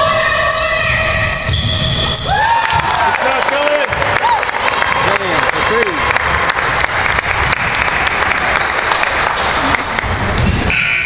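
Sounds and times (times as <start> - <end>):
scoreboard buzzer: 10.7 - 11.0.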